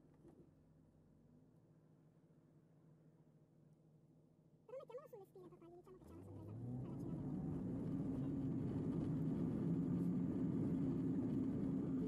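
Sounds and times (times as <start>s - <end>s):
car engine and road noise: 6.0s - 12.0s.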